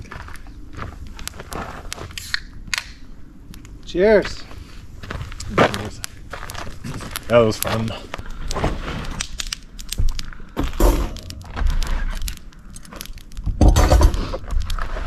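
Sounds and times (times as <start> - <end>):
campfire crackling and popping: 0.1 - 14.9.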